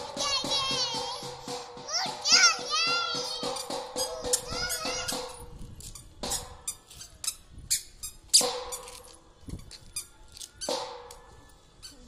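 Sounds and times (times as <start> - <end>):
squeaky shoes squeaking: 5.8 - 10.8, 11.8 - 12.0.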